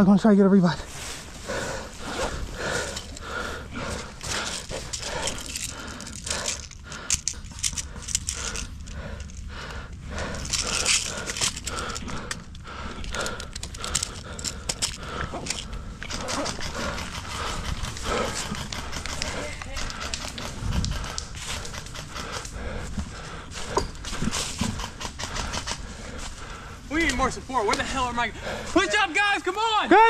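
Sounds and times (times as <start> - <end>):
rustle and crunch of dry leaves: 0.6 - 8.7
heavy breathing: 0.7 - 29.0
sharp clicks: 10.4 - 22.6.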